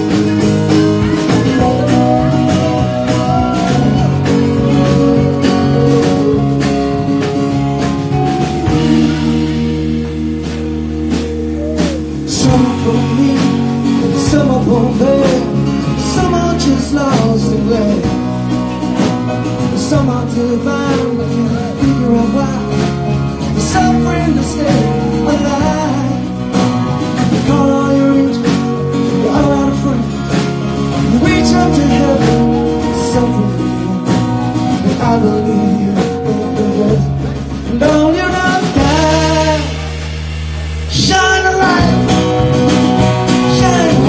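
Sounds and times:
acoustic guitar: 0:00.0 - 0:44.0
bass: 0:00.0 - 0:44.0
drums: 0:00.0 - 0:44.0
keyboard: 0:00.0 - 0:44.0
man singing: 0:11.2 - 0:40.0, 0:40.9 - 0:44.0.

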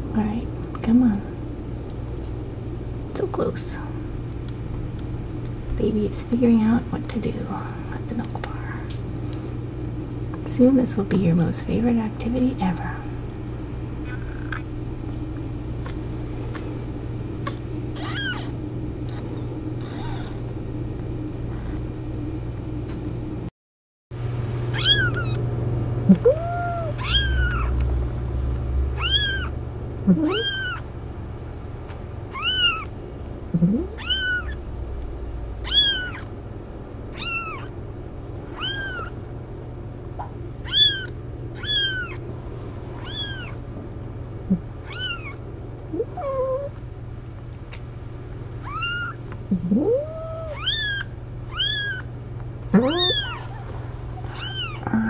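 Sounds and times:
steady low hum: 0:00.0 - 0:23.5, 0:24.2 - 0:55.0
kitten mewing: 0:14.0 - 0:14.7, 0:17.4 - 0:20.4, 0:24.7 - 0:25.4, 0:26.1 - 0:27.8, 0:29.0 - 0:30.9, 0:32.3 - 0:32.9, 0:33.5 - 0:34.6, 0:35.6 - 0:36.3, 0:37.1 - 0:37.7, 0:38.5 - 0:39.2, 0:40.6 - 0:42.2, 0:43.0 - 0:43.6, 0:44.5 - 0:46.8, 0:48.6 - 0:52.1, 0:52.7 - 0:55.0.

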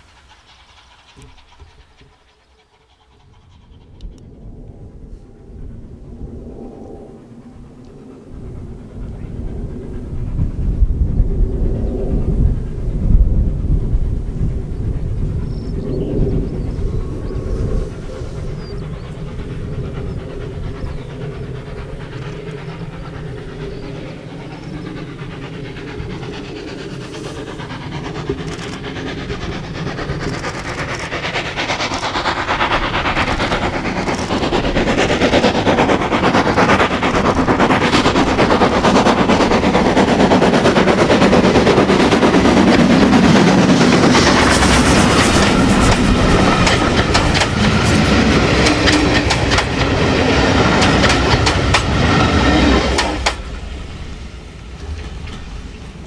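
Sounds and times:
steam locomotive exhaust beats: 0:00.0 - 0:56.0
wheels clicking over rail joints: 0:24.6 - 0:53.6.

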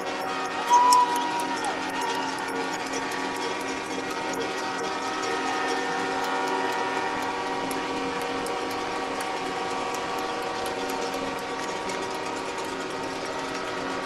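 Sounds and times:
truck air horns: 0:00.6 - 0:01.8, 0:05.0 - 0:07.7.

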